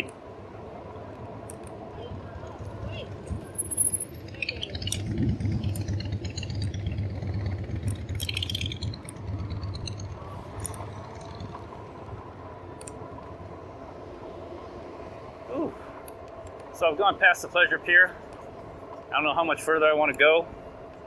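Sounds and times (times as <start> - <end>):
wind rumble on microphone: 0.0 - 16.6
bike rattling and clinking: 2.5 - 11.8.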